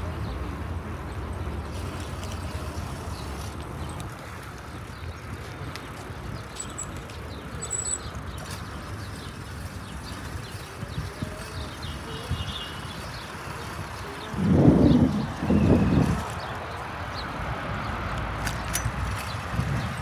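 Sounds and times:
distant traffic: 0.0 - 20.0
wind rumble: 13.6 - 20.0.

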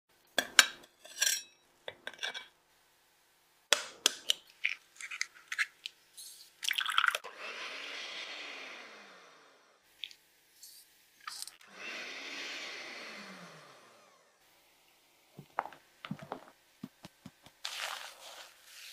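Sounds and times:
sugar pouring: 6.6 - 7.2, 17.6 - 18.9.

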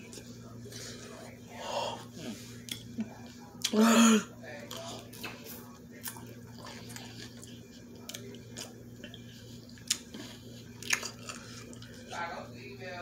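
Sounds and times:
steady low hum: 0.0 - 13.0
person biting and chewing food: 6.0 - 11.9.

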